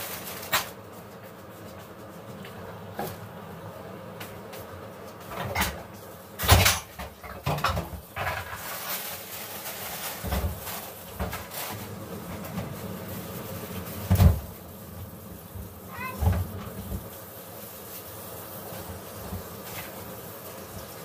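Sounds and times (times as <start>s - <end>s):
objects knocking and bumping: 5.2s - 8.7s.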